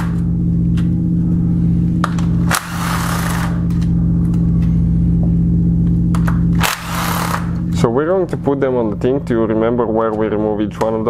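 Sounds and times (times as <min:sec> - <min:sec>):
power tool running: 0:00.0 - 0:04.4, 0:05.8 - 0:07.9.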